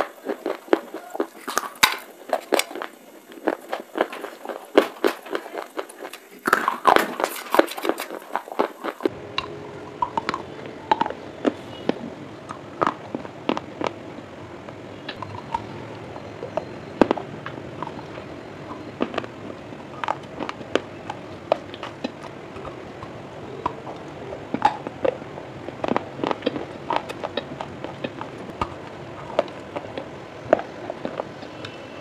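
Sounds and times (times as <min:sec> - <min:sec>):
clay pipe crunching: 0:00.0 - 0:09.1
steady hiss: 0:00.0 - 0:32.0.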